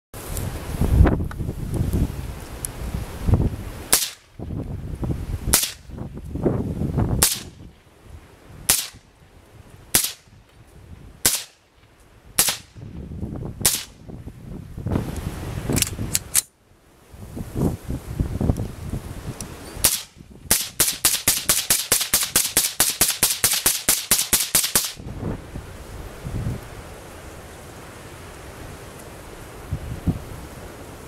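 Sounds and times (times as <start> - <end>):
suppressed rifle shots: 3.9 - 4.3, 5.5 - 5.8, 7.2 - 7.5, 8.7 - 9.0, 9.9 - 10.3, 11.2 - 11.6, 12.4 - 12.8, 13.6 - 14.0, 19.8 - 25.0.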